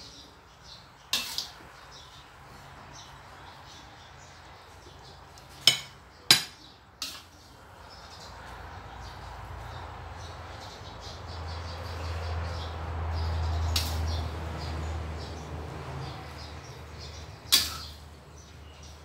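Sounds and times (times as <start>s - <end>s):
spatula clanking on wok: 1.1s - 1.6s, 5.6s - 7.3s, 17.5s - 18.0s.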